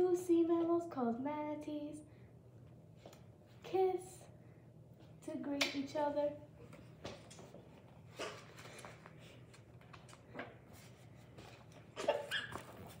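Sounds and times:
steady low hum: 0:00.0 - 0:12.1
child's voice: 0:03.6 - 0:04.3.

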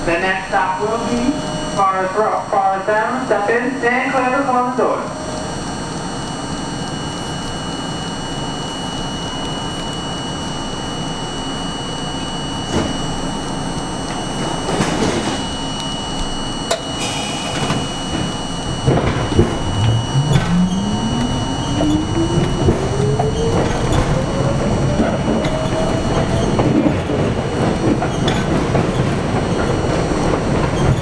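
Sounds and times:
subway car humming: 0:00.0 - 0:31.0
traction motors whining: 0:05.1 - 0:31.0
train doors closing: 0:14.1 - 0:31.0.

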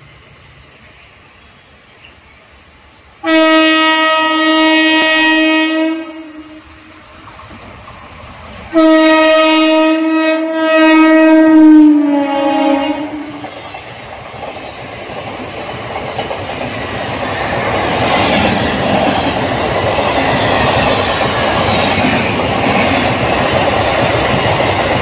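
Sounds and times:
train horn blasts: 0:03.2 - 0:07.0, 0:08.7 - 0:13.7.

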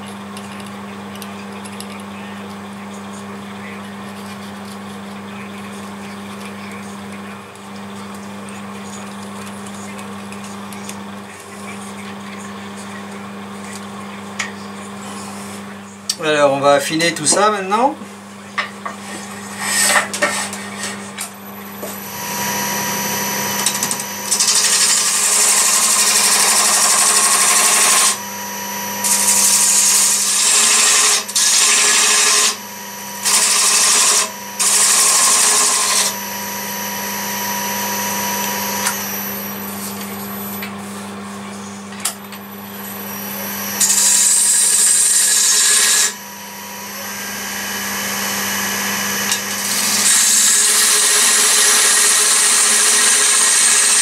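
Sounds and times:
wood lathe motor hum: 0:19.5 - 0:40.8, 0:42.4 - 0:54.0
turning tool cutting wood: 0:21.9 - 0:39.7, 0:42.9 - 0:46.2, 0:47.2 - 0:54.0.

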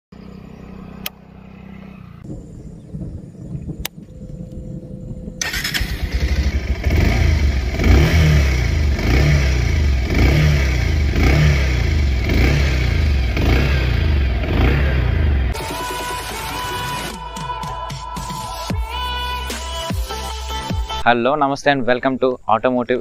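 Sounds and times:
motorcycle engine starting and running: 0:00.1 - 0:02.9, 0:03.8 - 0:17.2
click: 0:03.8 - 0:04.6.

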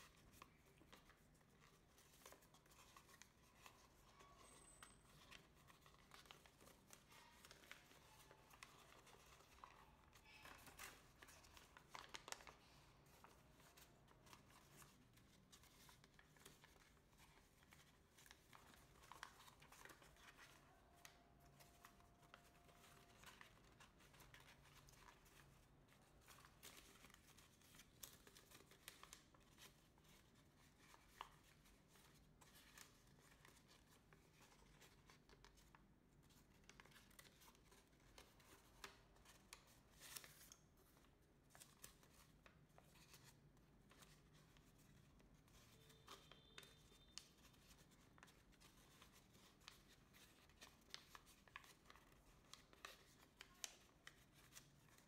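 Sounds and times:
paper crinkling and rustling: 0:00.0 - 0:55.0.

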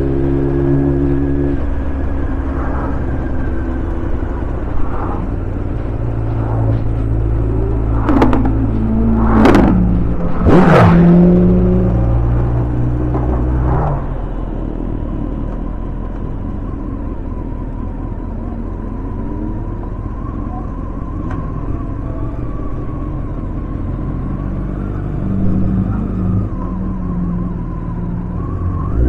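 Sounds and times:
motorcycle engine running: 0:00.0 - 0:17.5
road noise: 0:00.0 - 0:29.0
wind noise: 0:02.1 - 0:14.4.

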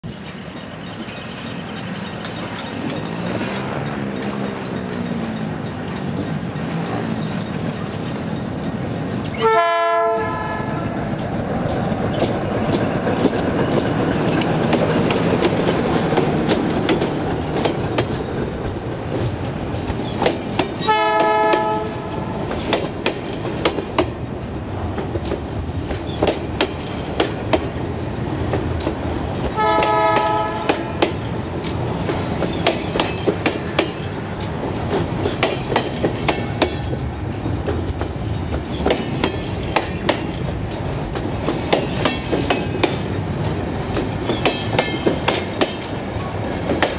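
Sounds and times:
freight train rumbling past: 0:00.0 - 0:46.9
wheels clicking over rail joints: 0:00.1 - 0:46.9
train horn blasts: 0:09.4 - 0:11.0, 0:20.8 - 0:22.4, 0:29.6 - 0:31.2.

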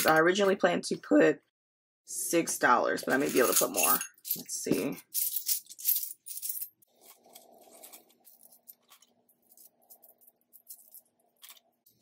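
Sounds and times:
coins clinking: 0:03.1 - 0:12.0.

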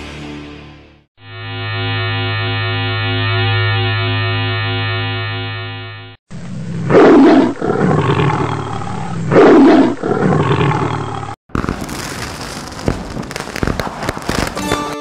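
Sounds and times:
lion roaring: 0:06.4 - 0:11.4
crackling fizzing sparkle effect: 0:11.8 - 0:15.0.

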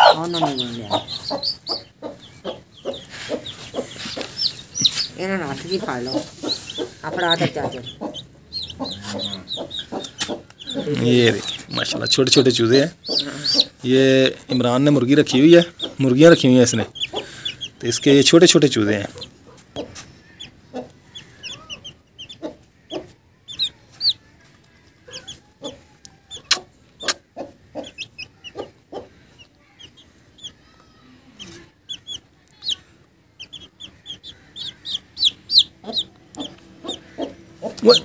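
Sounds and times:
chicks peeping: 0:00.0 - 0:38.0.

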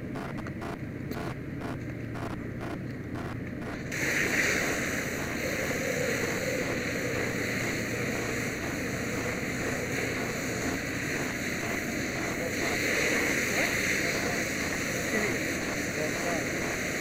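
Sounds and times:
steam hissing: 0:03.7 - 0:17.0
water spraying from hose: 0:03.8 - 0:17.0.

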